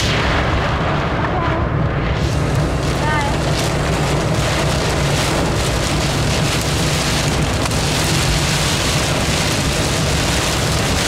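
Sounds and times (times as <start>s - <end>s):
moving car rumble: 0.0s - 11.0s
hail and rain on car roof: 2.2s - 11.0s.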